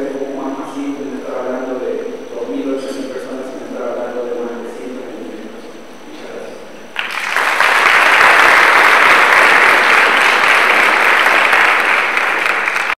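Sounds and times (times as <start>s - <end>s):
audience applause: 7.0s - 13.0s.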